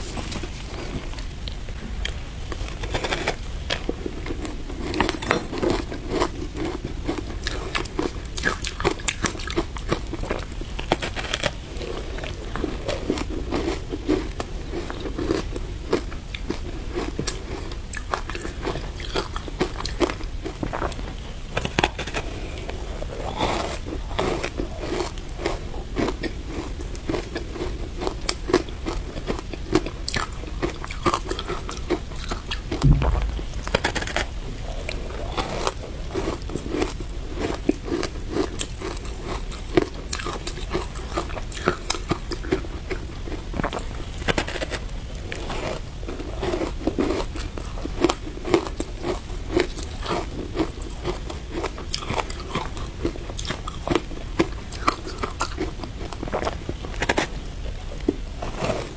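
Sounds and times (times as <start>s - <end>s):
crunching shaved ice: 2.5s - 32.6s, 33.9s - 57.3s
heavy thump: 32.8s - 34.2s.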